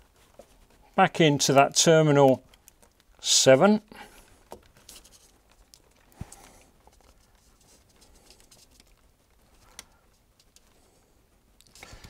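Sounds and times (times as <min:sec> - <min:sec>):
small clicks: 0:01.5 - 0:03.2, 0:04.4 - 0:07.4, 0:08.0 - 0:10.9.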